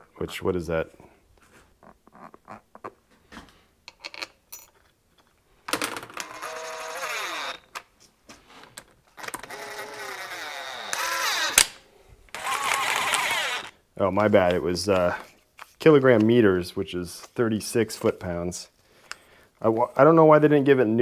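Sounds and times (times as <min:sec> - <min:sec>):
cordless drill driving bolts: 0:06.2 - 0:07.8, 0:09.2 - 0:13.8.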